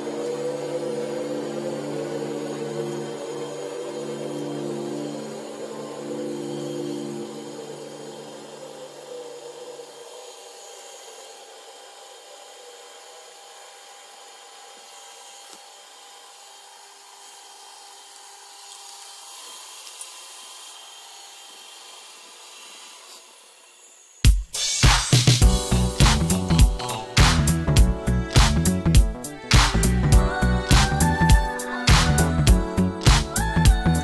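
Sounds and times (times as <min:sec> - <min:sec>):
small spinning machine whine: 0:00.0 - 0:28.3, 0:29.1 - 0:34.0
loud funk music: 0:24.3 - 0:34.0.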